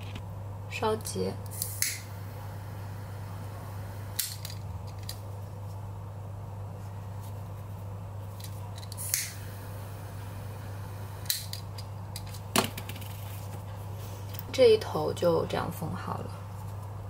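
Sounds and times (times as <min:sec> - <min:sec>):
low hum: 0:00.0 - 0:17.0
lighter clicking: 0:08.9 - 0:09.4.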